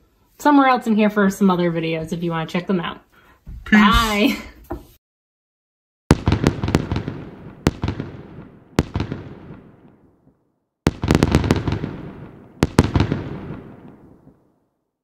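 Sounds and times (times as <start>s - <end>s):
fireworks bangs with echoes: 6.1s - 14.5s.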